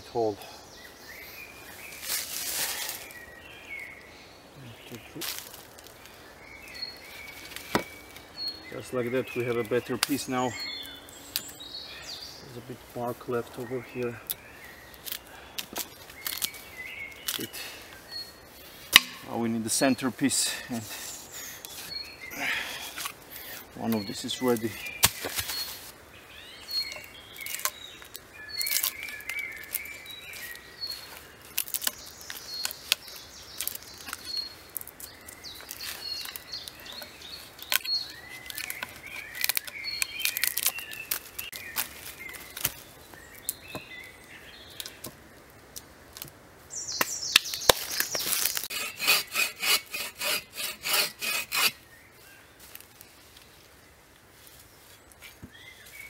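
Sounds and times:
birds chirping: 0.0s - 56.0s
knife scraping bark from log: 18.8s - 19.4s, 20.8s - 25.9s, 47.7s - 51.8s.

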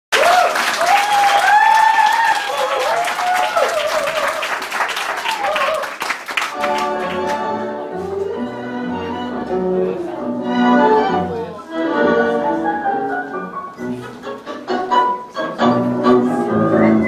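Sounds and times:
whooping cheers: 0.1s - 6.0s
audience applauding: 0.1s - 7.5s
tango music with strings: 6.5s - 17.0s.

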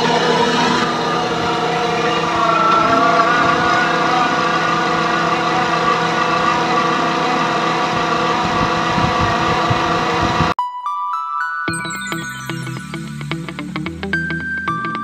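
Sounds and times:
rock drill running: 0.0s - 10.5s.

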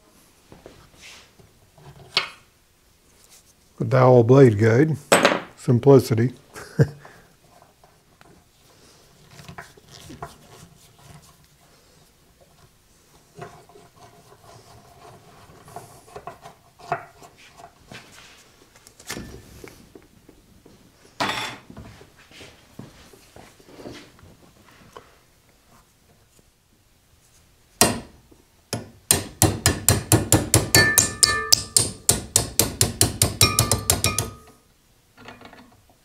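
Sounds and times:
bandsaw wheel knocks: 29.1s - 34.6s.

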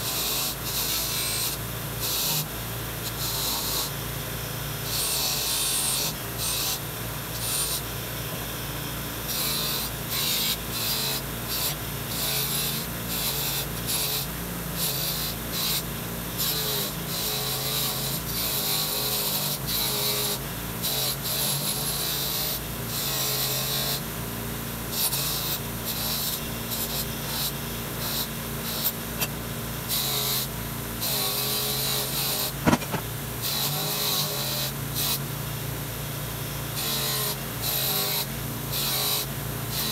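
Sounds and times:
bench grinder motor hum: 0.0s - 24.0s, 24.9s - 35.3s, 36.7s - 39.9s
sharp click: 32.6s - 33.1s.

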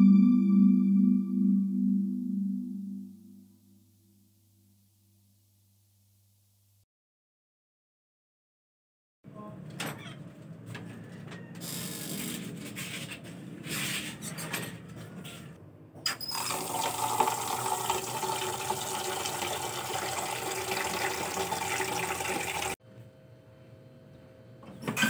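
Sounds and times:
tap water filling metal pot: 16.2s - 22.8s.

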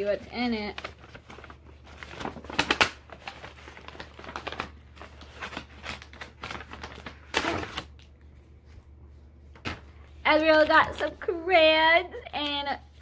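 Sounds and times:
paper bag rustling: 0.0s - 8.8s.

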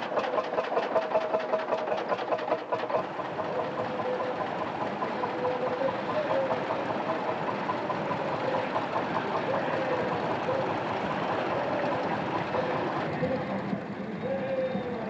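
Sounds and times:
engine running: 0.0s - 15.0s.

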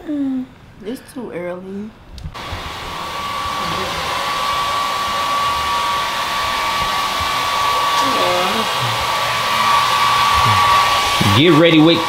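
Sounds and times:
hair dryer running: 2.4s - 12.0s.

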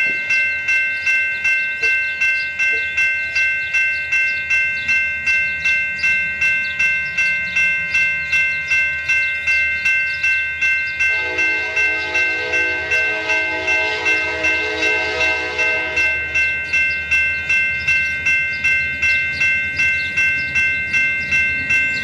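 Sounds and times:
railroad crossing bell ringing: 0.0s - 22.0s
locomotive horn: 11.1s - 16.4s.

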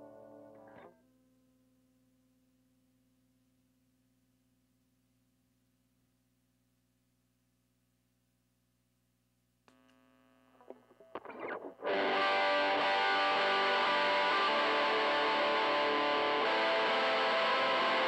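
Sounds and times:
faint amp hum: 0.0s - 17.6s
click: 9.6s - 10.0s
scratchy noises: 10.7s - 11.9s
distorted guitar chord ringing: 11.8s - 18.0s.

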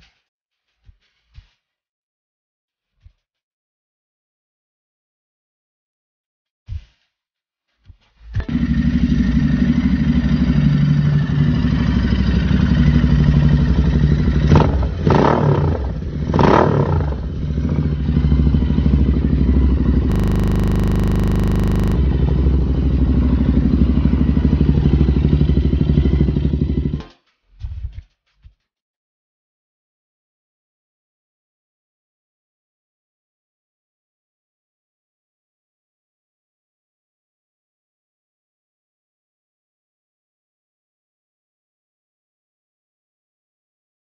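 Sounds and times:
motorcycle engine revving: 20.1s - 22.0s.

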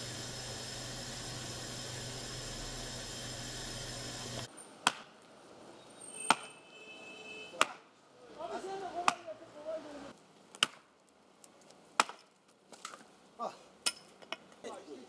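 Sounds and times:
gas stove burner hissing: 0.0s - 4.5s
axe chopping firewood: 4.8s - 5.2s, 7.6s - 7.8s, 9.0s - 9.2s, 10.5s - 10.9s, 12.0s - 13.0s.

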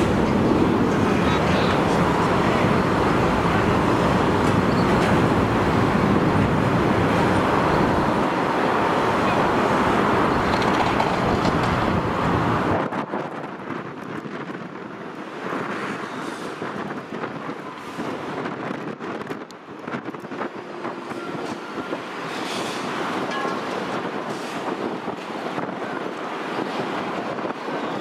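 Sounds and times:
jet engines roaring: 0.0s - 13.3s
wind on microphone: 0.0s - 28.0s.

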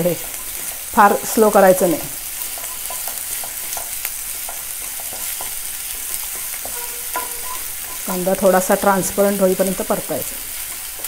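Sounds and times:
vegetables sizzling in hot oil: 0.0s - 11.0s
wooden spatula scraping and tapping pan: 2.3s - 8.7s.

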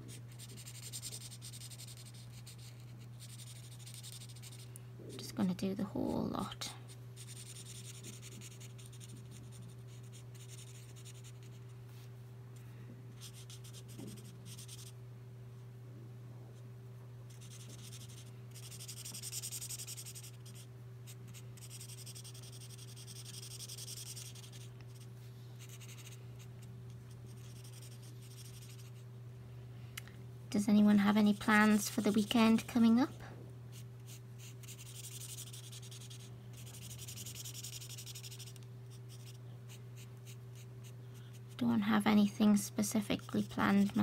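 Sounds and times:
steady low hum: 0.0s - 44.0s
marker rubbing across paper: 0.3s - 4.6s, 7.2s - 11.6s, 13.2s - 14.9s, 17.3s - 20.7s, 21.3s - 26.2s, 27.3s - 29.0s, 34.1s - 39.4s.

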